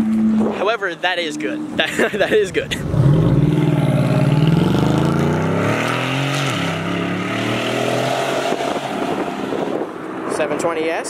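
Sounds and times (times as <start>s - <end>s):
car engine accelerating past: 2.5s - 10.3s.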